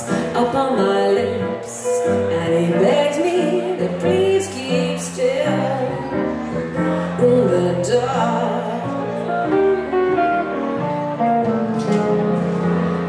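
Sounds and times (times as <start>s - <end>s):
electric keyboard: 8.6s - 13.0s
electric guitar: 9.0s - 13.0s.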